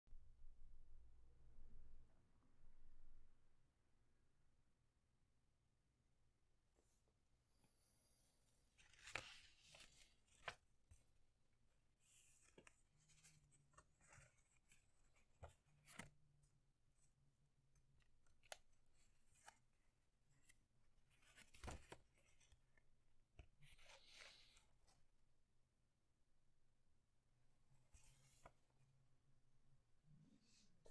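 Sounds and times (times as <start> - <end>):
paper rustling and crinkling: 8.8 - 11.0, 20.4 - 22.5.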